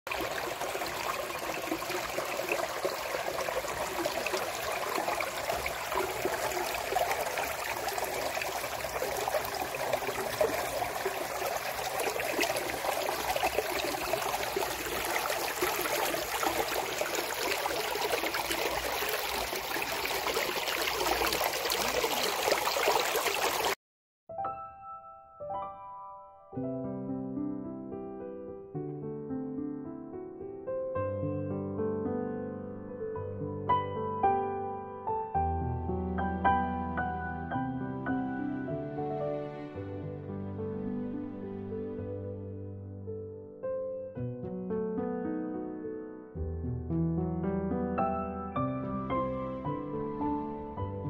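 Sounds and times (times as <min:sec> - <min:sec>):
stream rushing over rocks: 0:00.1 - 0:23.8.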